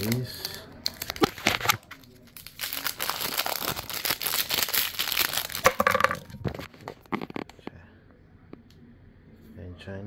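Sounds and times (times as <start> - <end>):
plastic wrapping crinkling: 0.0 - 7.5.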